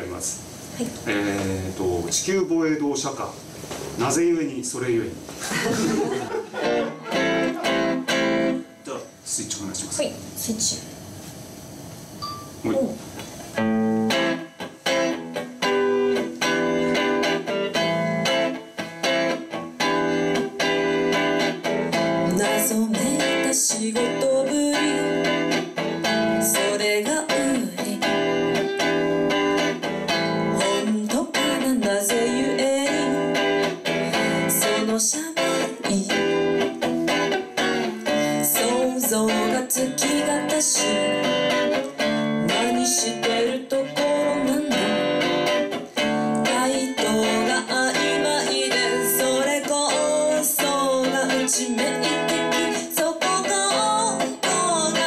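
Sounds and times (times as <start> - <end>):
electric guitar strummed: 6.5 - 8.9, 12.5 - 55.0
woman singing into microphone: 22.2 - 25.5, 26.3 - 28.2, 30.5 - 36.7, 38.0 - 41.5, 42.4 - 45.5, 46.4 - 55.0.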